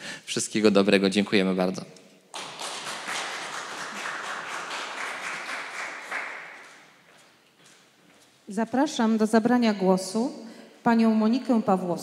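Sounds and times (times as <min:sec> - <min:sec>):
audience applauding: 0:02.3 - 0:07.0.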